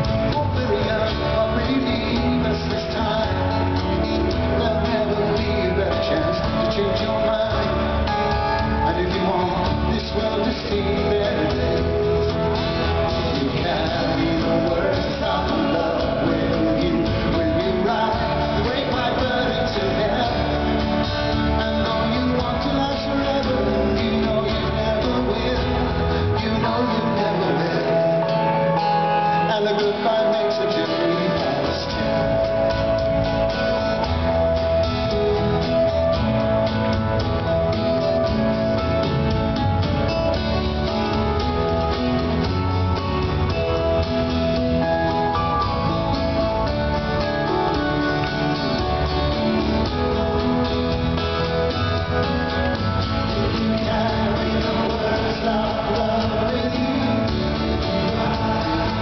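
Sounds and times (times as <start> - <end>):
bass guitar: 0.0 - 59.0
man singing: 0.0 - 59.0
strummed acoustic guitars: 0.0 - 59.0.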